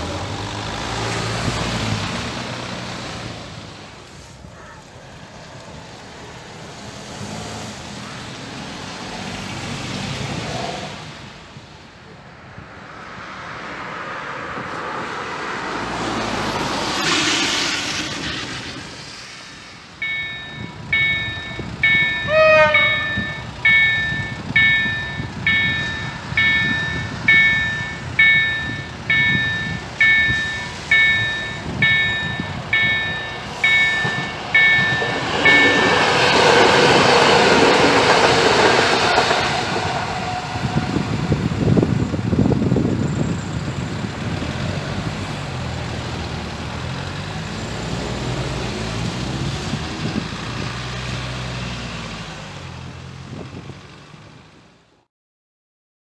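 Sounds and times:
road traffic: 0.0s - 55.1s
electric train passing: 12.5s - 51.6s
level crossing warning bell: 20.0s - 39.0s.

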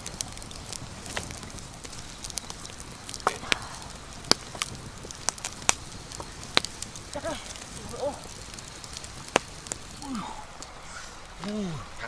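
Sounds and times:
campfire crackling and popping: 0.0s - 12.0s.

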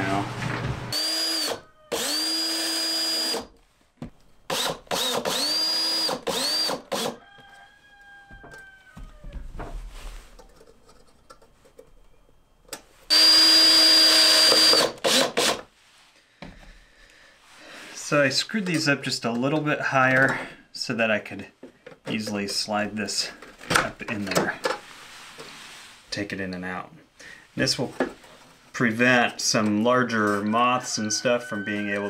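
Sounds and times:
cordless drill driving screws: 0.9s - 3.5s, 4.5s - 7.2s, 13.1s - 15.7s.

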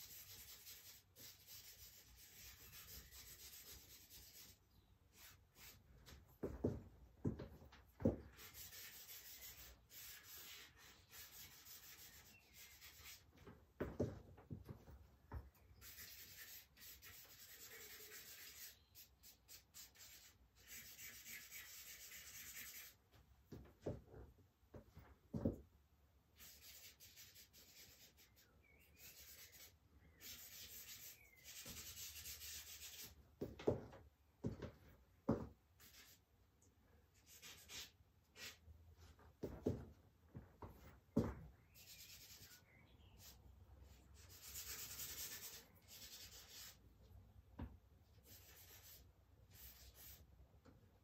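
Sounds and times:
charcoal scraping on paper: 15.8s - 23.0s.

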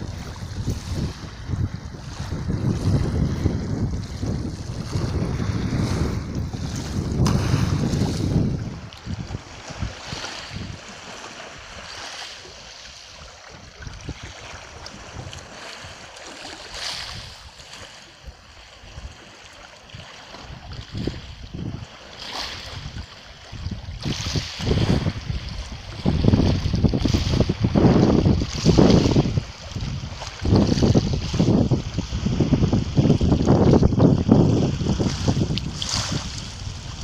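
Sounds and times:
waves lapping on shingle beach: 0.0s - 37.0s
wind buffeting microphone: 0.0s - 37.0s.

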